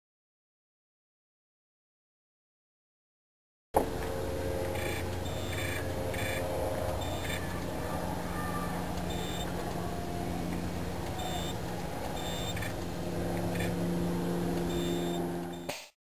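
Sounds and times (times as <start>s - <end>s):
machinery humming: 3.8s - 15.8s
short high beeps: 12.2s - 12.6s, 14.7s - 15.7s.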